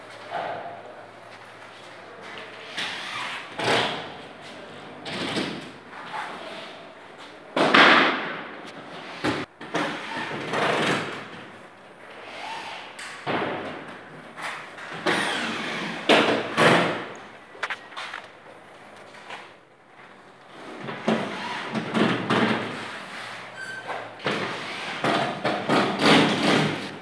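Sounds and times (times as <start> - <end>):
knocks and thuds on drywall: 13.2 - 13.9, 20.8 - 22.8, 24.2 - 26.9
drywall scraping: 20.6 - 23.6, 24.2 - 27.0.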